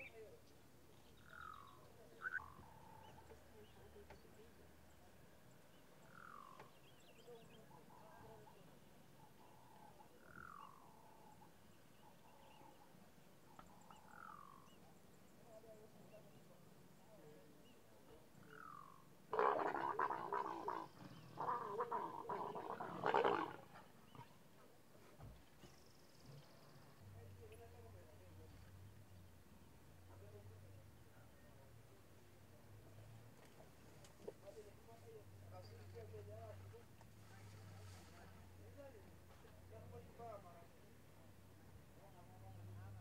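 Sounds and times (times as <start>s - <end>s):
wild animal calls: 1.2s - 3.4s, 18.4s - 24.4s
leopards growling loudly: 19.3s - 24.3s.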